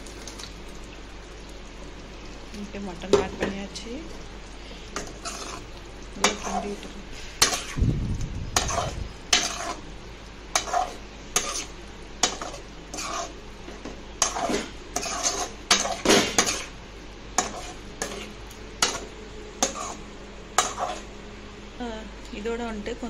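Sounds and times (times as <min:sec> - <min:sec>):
low sizzle: 0:00.0 - 0:23.0
metal spoon scraping a pan: 0:05.0 - 0:07.8, 0:08.6 - 0:09.8, 0:10.5 - 0:13.4, 0:14.2 - 0:16.7, 0:17.4 - 0:20.0, 0:20.6 - 0:21.1.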